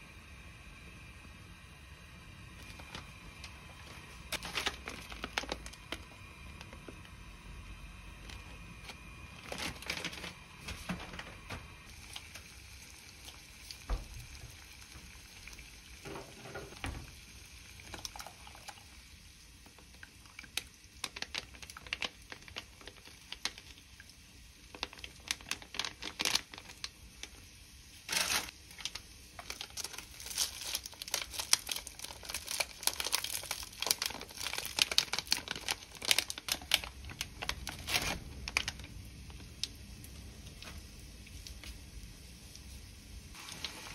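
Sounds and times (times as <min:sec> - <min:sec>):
plastic packets crinkling and tearing: 0:02.6 - 0:07.0, 0:08.2 - 0:12.6, 0:19.8 - 0:23.8, 0:24.6 - 0:27.4, 0:28.1 - 0:39.8.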